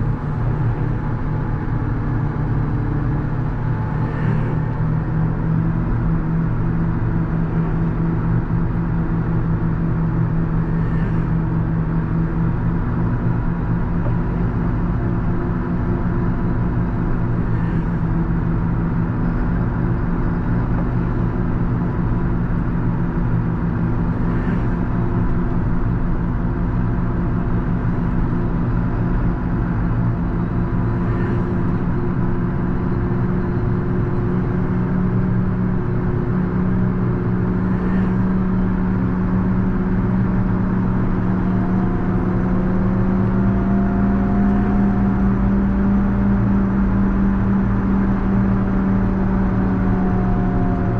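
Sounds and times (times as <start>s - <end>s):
diesel tractor engine running: 0.0s - 50.9s.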